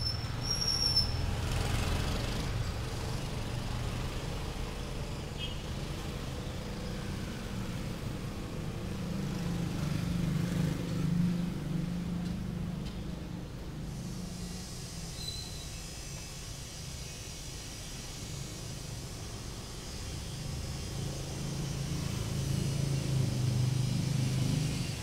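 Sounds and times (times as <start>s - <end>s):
street traffic: 0.0s - 25.0s
high thin bird whistles: 15.2s - 15.8s.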